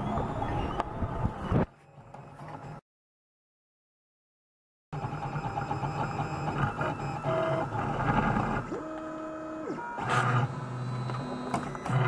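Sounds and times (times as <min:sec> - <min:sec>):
stepper motors whirring and whining: 0:00.0 - 0:02.3, 0:05.0 - 0:12.0.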